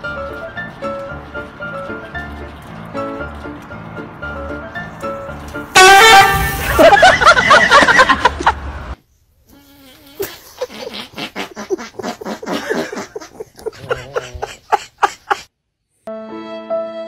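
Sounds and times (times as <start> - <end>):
dog grunting and whimpering: 10.8 - 14.8
violin background music: 16.1 - 17.0.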